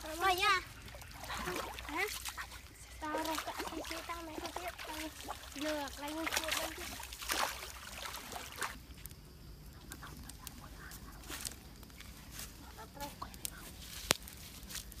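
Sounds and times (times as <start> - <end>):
feet wading through water: 0.0 - 9.0.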